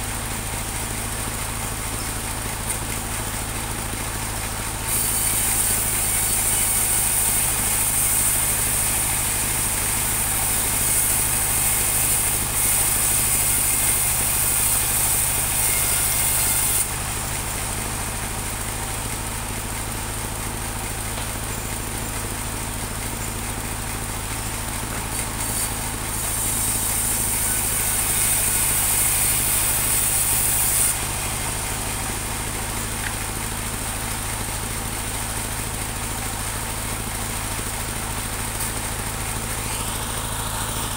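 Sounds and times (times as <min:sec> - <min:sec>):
band sawmill engine running: 0:00.0 - 0:40.9
bandsaw blade cutting log: 0:04.8 - 0:17.5, 0:24.2 - 0:33.9, 0:38.2 - 0:40.9.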